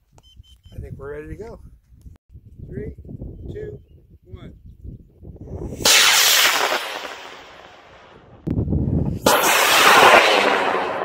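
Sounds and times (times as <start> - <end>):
wind buffeting microphone: 0.0 - 6.6, 7.5 - 9.6
rocket motor roaring: 9.2 - 11.0.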